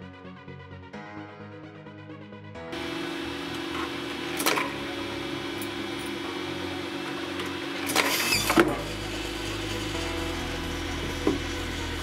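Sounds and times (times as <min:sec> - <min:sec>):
steady hum: 0:02.8 - 0:12.0.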